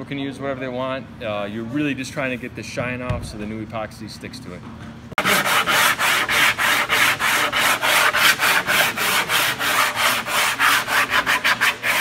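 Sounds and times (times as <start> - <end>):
sanding block scrubbing: 5.2 - 12.0.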